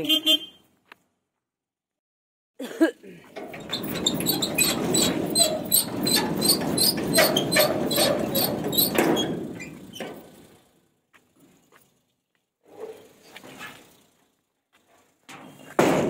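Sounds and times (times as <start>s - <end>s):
gate squeaks: 3.3s - 10.3s
metal gate clicks and rattles: 3.3s - 10.4s.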